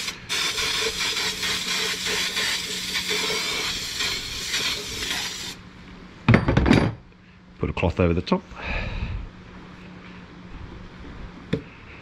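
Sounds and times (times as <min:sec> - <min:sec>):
aerosol can hissing: 0:00.0 - 0:05.6.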